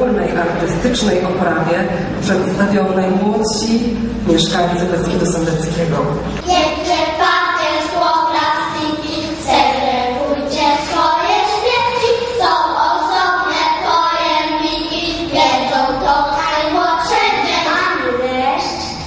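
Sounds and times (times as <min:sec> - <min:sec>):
young children singing: 0:06.4 - 0:19.0.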